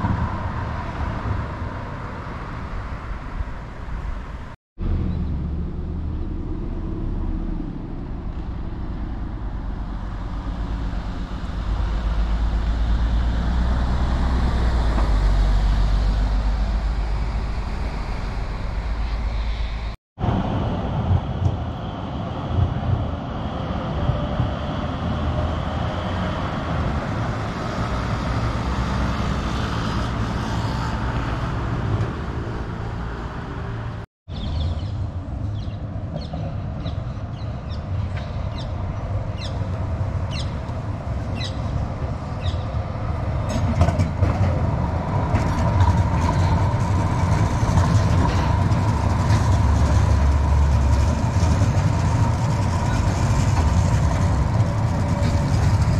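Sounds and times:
tram rumbling on track: 0:00.0 - 0:55.9
wheels clicking on rails: 0:39.6 - 0:55.9.

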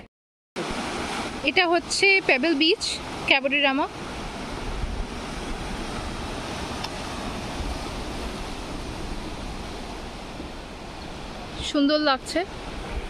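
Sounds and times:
surf breaking on pebble shore: 0:00.6 - 0:11.7
wind rumble on microphone: 0:02.9 - 0:13.0.

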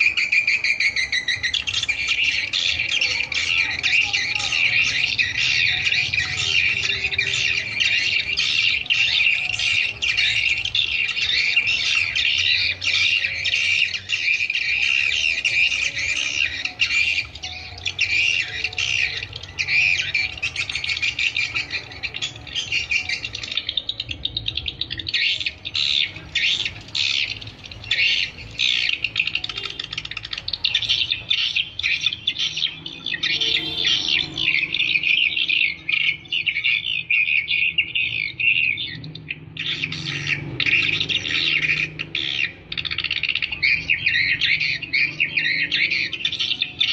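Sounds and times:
swiftlet twittering chorus: 0:00.0 - 0:46.9.

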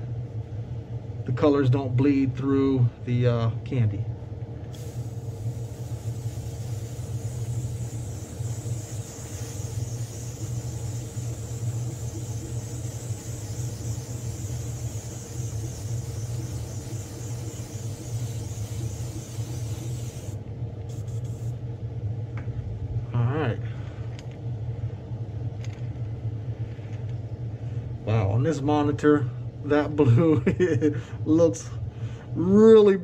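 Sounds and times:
low motor hum: 0:04.0 - 0:28.0
hiss of blowing air: 0:04.7 - 0:21.6.

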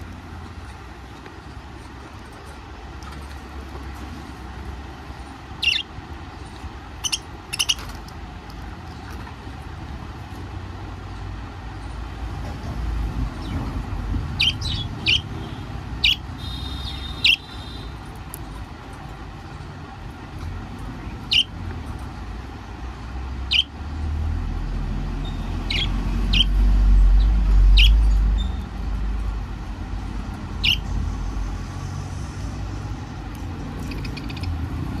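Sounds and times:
budgerigars chirping: 0:05.6 - 0:05.9, 0:07.0 - 0:07.9, 0:14.4 - 0:17.9, 0:21.0 - 0:21.6, 0:23.5 - 0:23.7, 0:25.2 - 0:26.6, 0:27.2 - 0:28.6, 0:30.6 - 0:30.9, 0:33.8 - 0:35.0.

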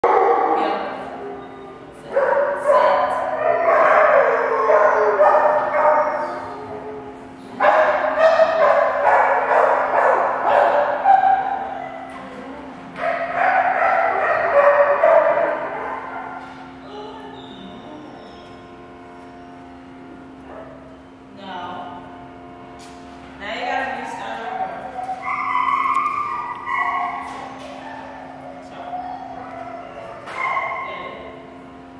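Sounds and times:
steady low hum: 0:00.0 - 0:31.9
dog barking and yipping: 0:02.2 - 0:06.4, 0:07.6 - 0:12.1, 0:13.0 - 0:16.4, 0:24.3 - 0:30.9.

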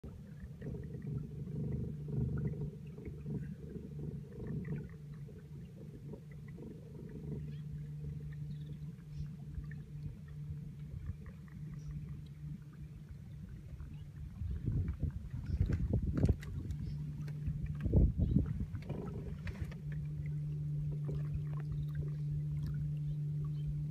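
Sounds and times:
low steady hum: 0:00.0 - 0:23.9.

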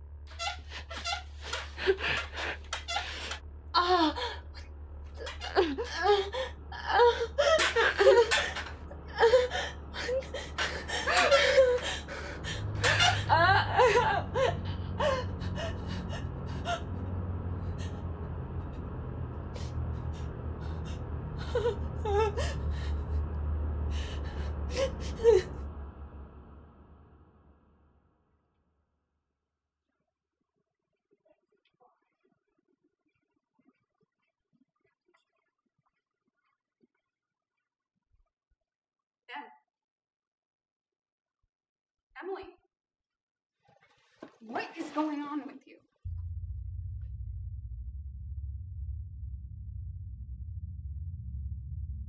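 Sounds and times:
low steady drone: 0:00.0 - 0:27.9, 0:46.1 - 0:52.0
woman sobbing and wailing: 0:00.4 - 0:04.6, 0:05.2 - 0:18.0, 0:19.6 - 0:23.3, 0:23.9 - 0:25.6
gasping breaths: 0:05.2 - 0:13.6.

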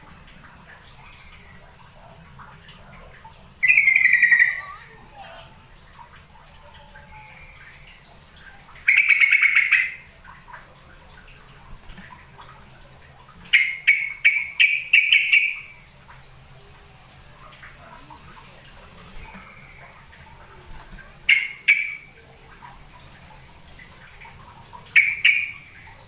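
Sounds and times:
bird chattering calls: 0:03.6 - 0:04.9, 0:08.9 - 0:10.0.

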